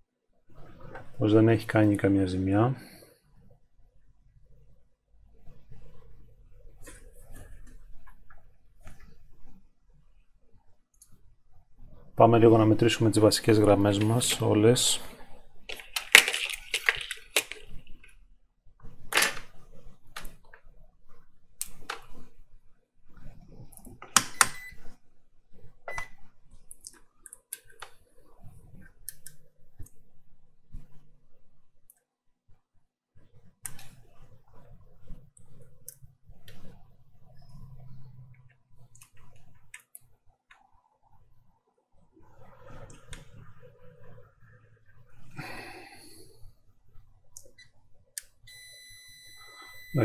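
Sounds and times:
short beeps: 0:48.5 - 0:50.0.

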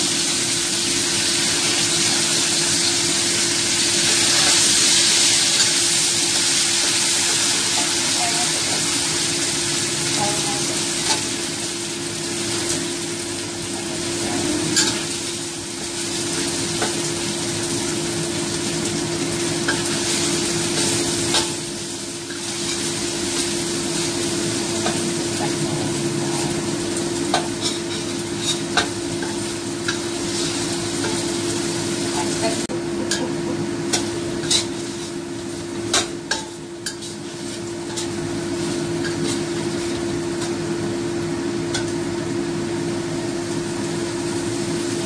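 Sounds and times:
paste sizzling in a wok: 0:00.0 - 0:45.0
steady hum: 0:13.4 - 0:43.0
spatula scraping a pan: 0:27.3 - 0:31.3, 0:33.9 - 0:35.2.

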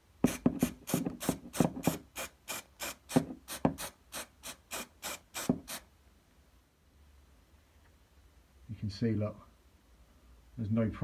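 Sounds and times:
aerosol spray bursts: 0:00.6 - 0:05.9.

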